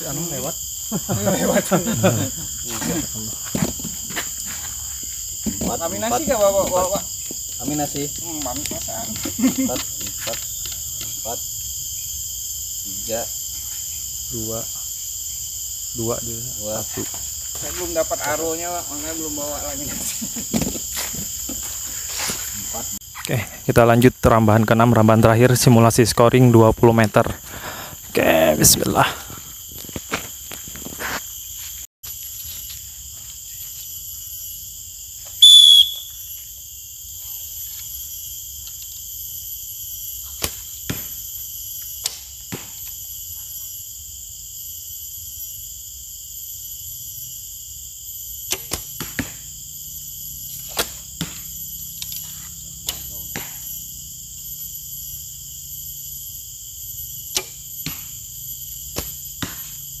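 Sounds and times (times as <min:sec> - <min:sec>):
insect chorus: 0:00.0 - 1:00.0
arrow striking target: 0:48.5 - 0:49.5, 0:50.6 - 0:51.5, 0:52.8 - 0:53.7, 0:57.3 - 0:58.2, 0:58.9 - 0:59.8.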